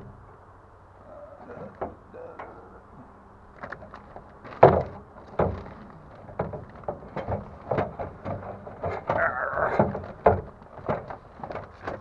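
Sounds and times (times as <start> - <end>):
tools knocking and clunking: 3.6 - 12.0.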